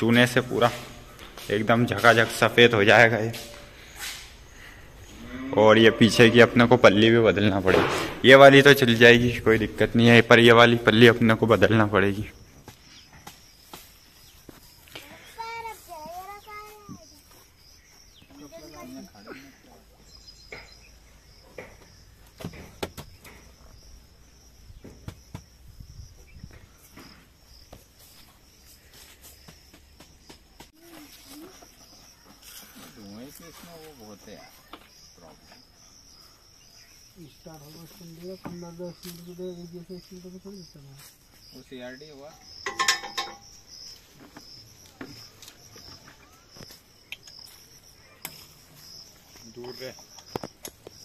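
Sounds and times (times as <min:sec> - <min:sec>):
insects chirring: 0:00.0 - 0:51.0
hand tools clicking and knocking: 0:42.6 - 0:43.4, 0:49.6 - 0:51.0
loud clattering clink: 0:42.6 - 0:43.5.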